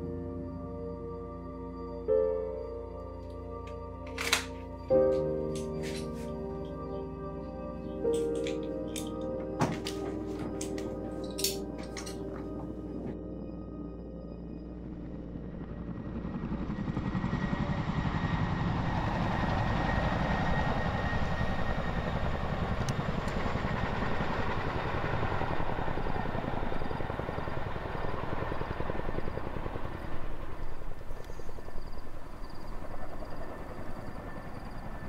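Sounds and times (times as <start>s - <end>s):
helicopter rotor chopping: 15.6s - 35.0s.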